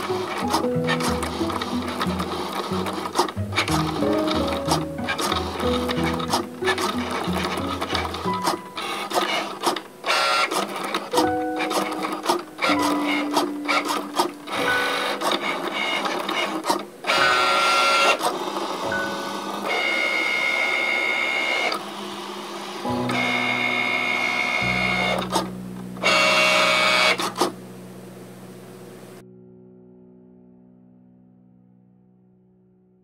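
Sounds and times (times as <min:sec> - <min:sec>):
machine clicks: 0:00.0 - 0:18.6
cutting machine motors whining: 0:00.0 - 0:27.6.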